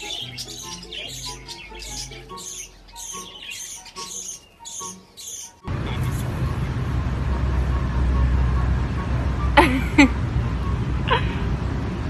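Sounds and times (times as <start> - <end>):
budgerigar chirping: 0.0 - 5.7
light background music: 0.0 - 12.0
steady low rumbling: 5.7 - 12.0.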